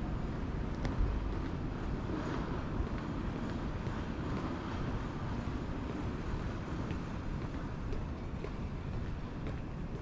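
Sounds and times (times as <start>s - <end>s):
city street traffic rumble: 0.0s - 10.0s
faint footsteps: 5.8s - 10.0s.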